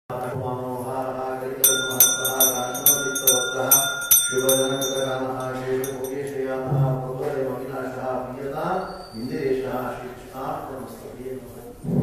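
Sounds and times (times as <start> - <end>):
brass hand bell ringing: 1.6 - 6.3.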